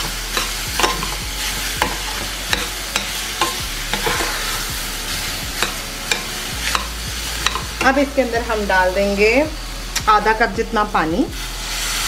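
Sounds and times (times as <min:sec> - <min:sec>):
metal spoon scraping a pan: 0:00.0 - 0:08.3
vegetables sizzling in oil: 0:00.0 - 0:12.0.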